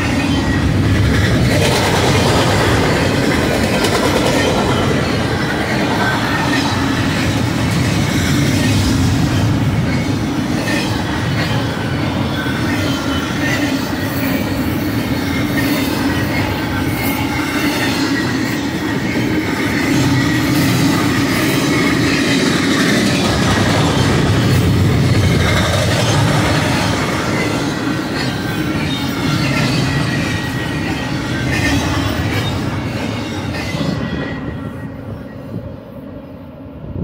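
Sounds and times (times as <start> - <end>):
freight train wheels rumbling: 0.0 - 37.0
high wheel squeal: 8.1 - 35.7.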